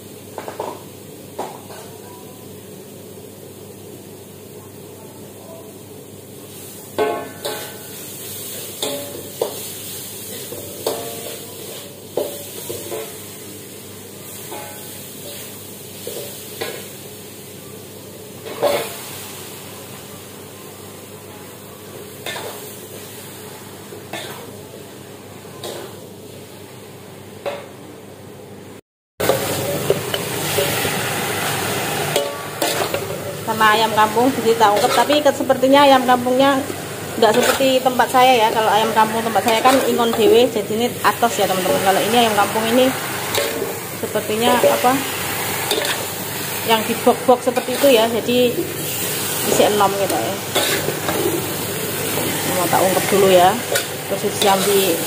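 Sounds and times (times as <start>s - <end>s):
utensils and wok clinking: 7.0s - 8.0s, 8.6s - 9.7s, 10.3s - 13.2s, 14.4s - 16.9s, 18.4s - 19.0s, 22.2s - 22.7s, 29.2s - 55.0s.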